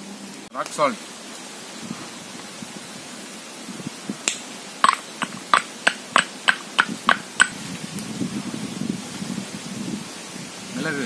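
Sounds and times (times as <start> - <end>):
salt pounded in stone mortar: 4.8 - 7.6.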